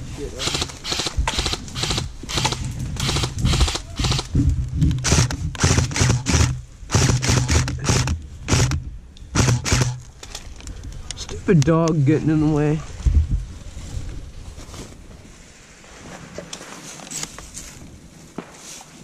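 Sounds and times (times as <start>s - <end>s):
airsoft gunfire snaps: 5.0s - 10.0s.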